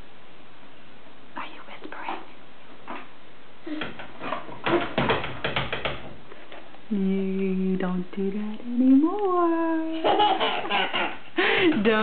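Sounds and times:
glass door rattling: 0:04.0 - 0:06.2.

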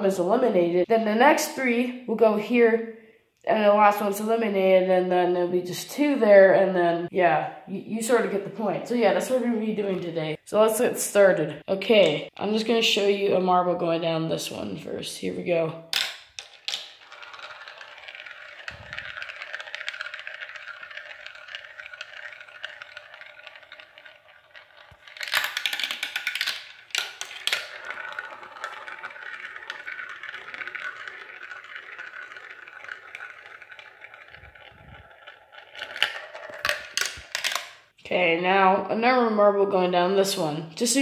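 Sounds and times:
marble circling plastic funnel: 0:03.9 - 0:39.0
marble rattling through plastic chutes: 0:15.9 - 0:37.9
marble clatter: 0:15.9 - 0:38.0.

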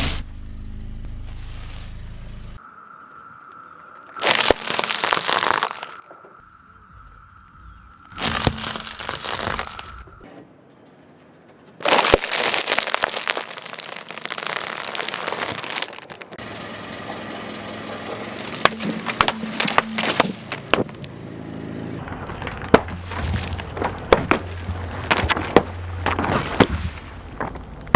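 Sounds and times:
car rumble: 0:00.0 - 0:04.2, 0:12.5 - 0:27.9
cookies and wrapper crunching: 0:04.0 - 0:06.0, 0:08.1 - 0:10.0, 0:11.8 - 0:16.4, 0:18.5 - 0:21.1
juice pouches bursting: 0:04.1 - 0:06.0, 0:08.2 - 0:10.0, 0:11.8 - 0:16.4.

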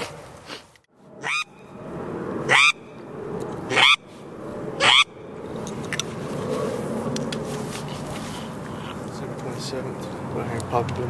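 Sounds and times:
duck call squealing notes: 0:01.2 - 0:01.5, 0:02.5 - 0:02.8, 0:03.7 - 0:04.0, 0:04.8 - 0:05.1.

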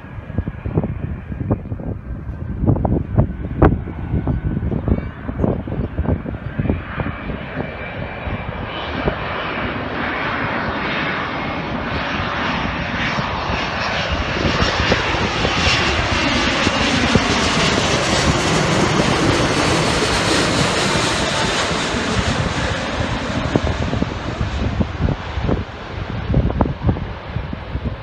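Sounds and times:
jet engines of airliner overhead: 0:00.0 - 0:28.0.

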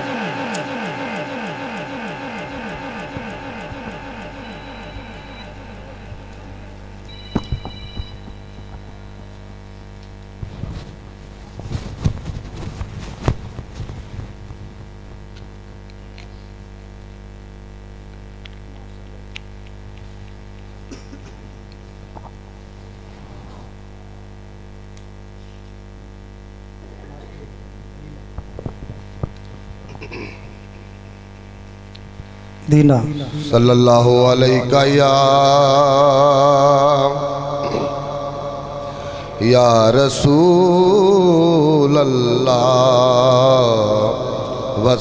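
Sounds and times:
electrical mains hum: 0:00.0 - 0:45.0
microphone handling bumps: 0:05.7 - 0:15.8, 0:28.3 - 0:30.8.

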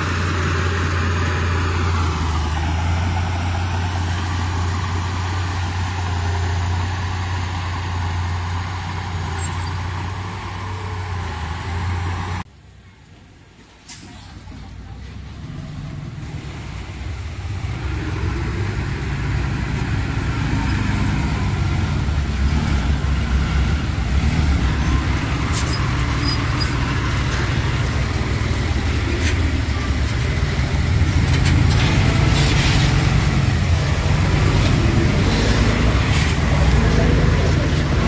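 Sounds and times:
bulldozer diesel engine running: 0:00.0 - 0:12.5, 0:14.4 - 0:38.0.

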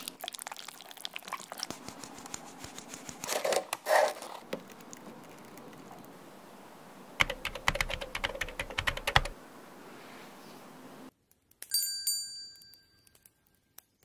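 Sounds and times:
rapid clicking and crunching: 0:01.5 - 0:06.0
bright bell-like chime: 0:11.7 - 0:13.0.

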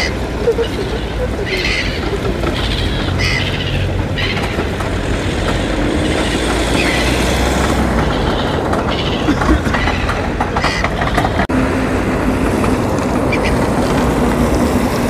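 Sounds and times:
high bird calls: 0:00.0 - 0:11.5, 0:13.3 - 0:13.7
bus engine rumbling: 0:00.0 - 0:15.0.

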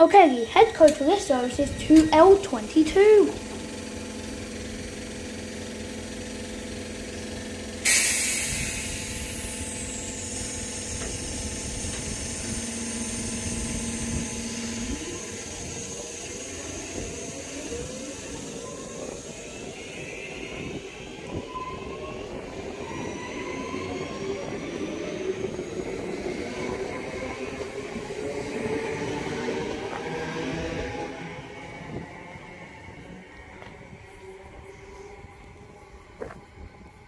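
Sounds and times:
train traction motors whining: 0:00.0 - 0:37.0
loud hiss of air: 0:07.8 - 0:19.9.

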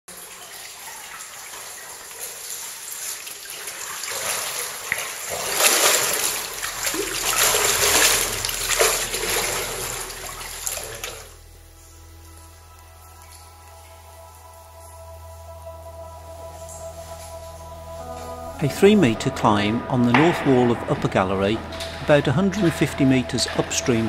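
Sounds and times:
water sloshing and splashing: 0:00.1 - 0:11.4, 0:18.9 - 0:24.0
soft music: 0:05.6 - 0:24.0.

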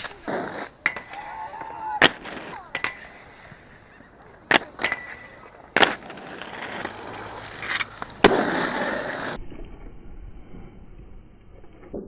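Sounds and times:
skate wheels rolling: 0:00.0 - 0:12.0
roller skates knocking on metal rail: 0:00.4 - 0:03.3
grinding scrape on rail: 0:04.6 - 0:09.4.

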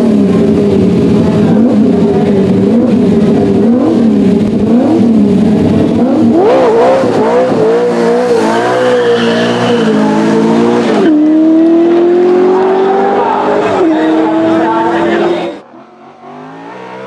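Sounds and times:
race car engine revving: 0:00.0 - 0:17.0
tyres squealing: 0:08.4 - 0:10.5.

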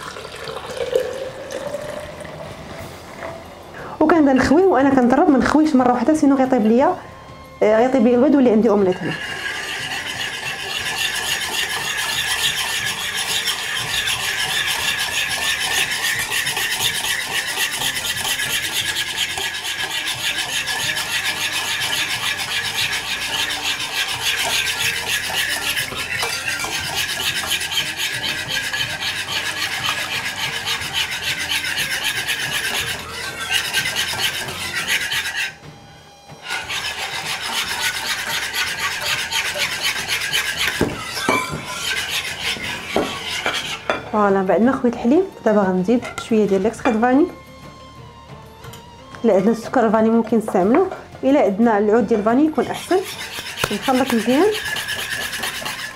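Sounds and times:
whisk scraping ceramic bowl: 0:04.1 - 0:07.0, 0:07.8 - 0:35.6, 0:36.4 - 0:47.4, 0:49.2 - 0:55.9.

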